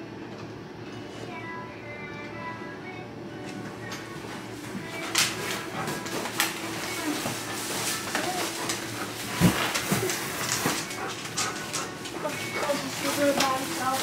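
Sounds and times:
shopping bags rustling: 0:04.0 - 0:14.0.

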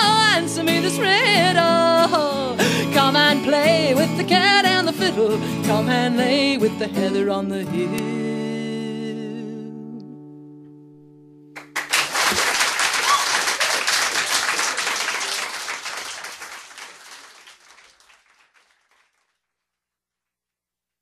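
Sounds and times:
audience applauding: 0:11.6 - 0:19.6.

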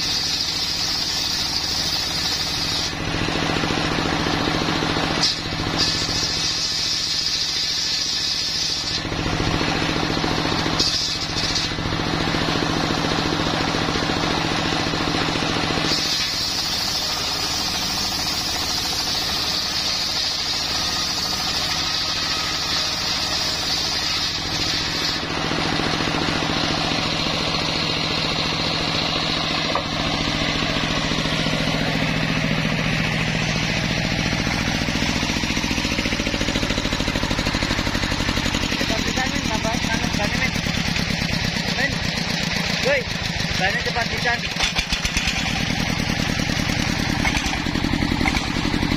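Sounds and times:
saw blade ripping wood: 0:00.0 - 0:04.2, 0:05.0 - 0:12.4, 0:15.0 - 0:27.8, 0:44.2 - 0:48.9
steady engine running: 0:00.0 - 0:48.9.

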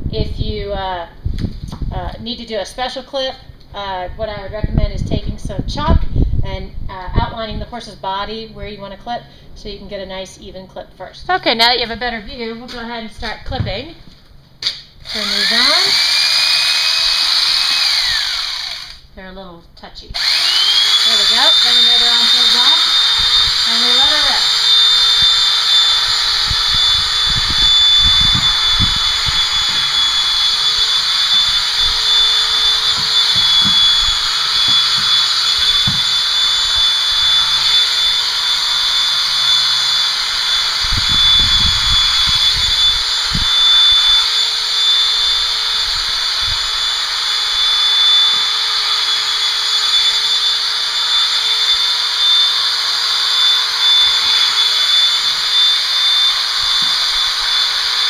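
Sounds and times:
electric clippers whining: 0:15.0 - 0:19.1, 0:20.2 - 0:58.0.

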